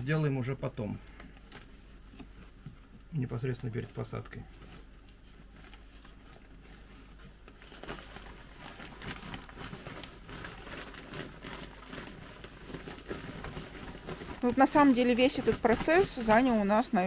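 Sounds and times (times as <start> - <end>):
plastic bag crinkling: 4.2 - 17.0.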